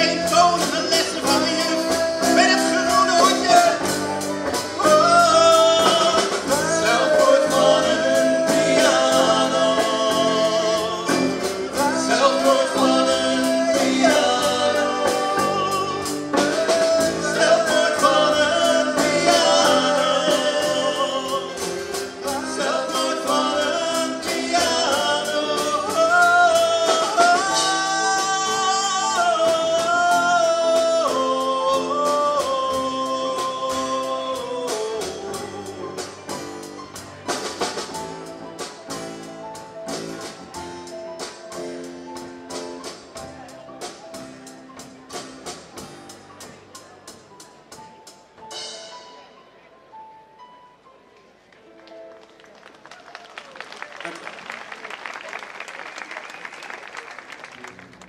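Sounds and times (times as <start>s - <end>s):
person singing long notes: 0.0s - 36.4s
live band playing: 0.0s - 58.0s.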